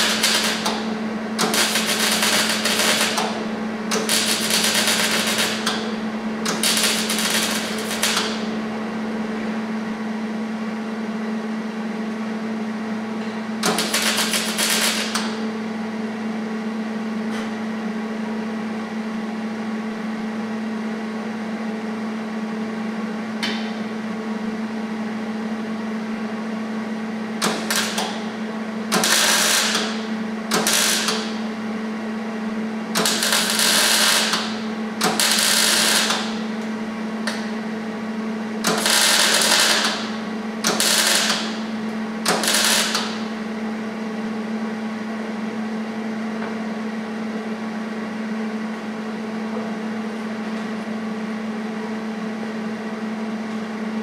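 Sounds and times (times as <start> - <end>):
welding crackle: 0.0 - 8.5, 13.6 - 15.3, 27.4 - 28.2, 28.9 - 31.4, 33.0 - 36.4, 38.6 - 41.6, 42.3 - 43.2
steady hum: 0.0 - 54.0.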